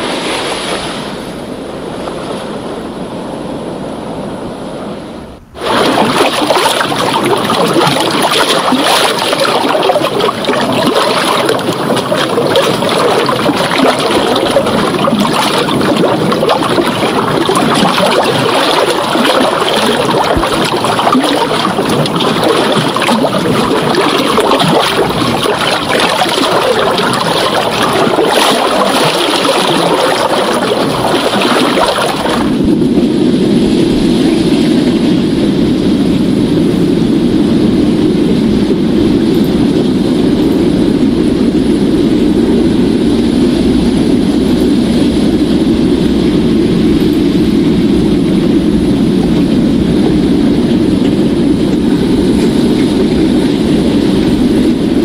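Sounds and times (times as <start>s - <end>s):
ocean surf hissing: 0.0s - 27.8s
breaking surf rumble: 0.0s - 55.0s.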